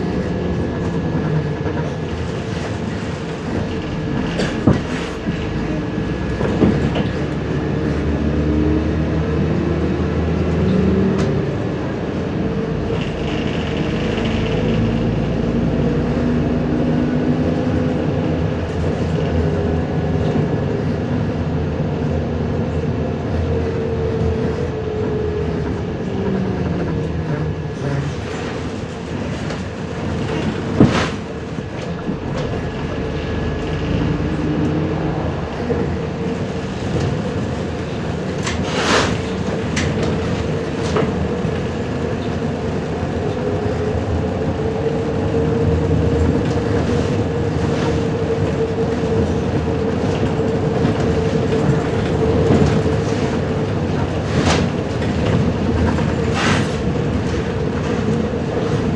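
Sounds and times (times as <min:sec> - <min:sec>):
bus diesel engine running: 0:00.0 - 0:58.9
road noise and body rattle: 0:00.0 - 0:58.9.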